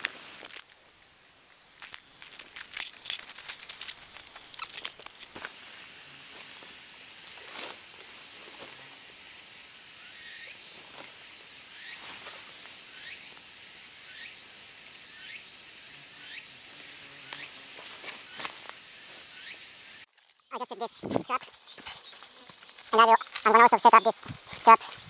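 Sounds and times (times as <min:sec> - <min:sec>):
high-pitched insect chorus: 0:00.0 - 0:25.0
short chirping calls: 0:20.4 - 0:24.9.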